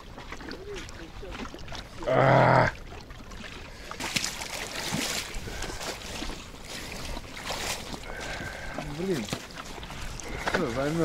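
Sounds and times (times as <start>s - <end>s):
ice slush crackling and splashing: 0.0s - 11.0s.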